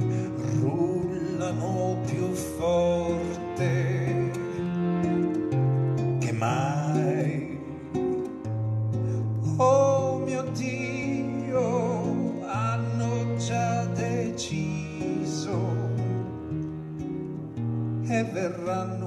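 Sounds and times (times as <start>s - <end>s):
accordion: 0.0s - 19.0s
acoustic guitar: 0.0s - 19.0s.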